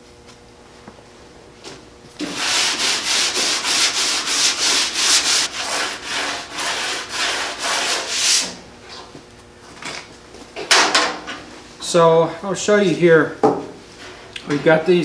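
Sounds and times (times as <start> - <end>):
sandpaper rasping on metal: 2.2 - 8.6.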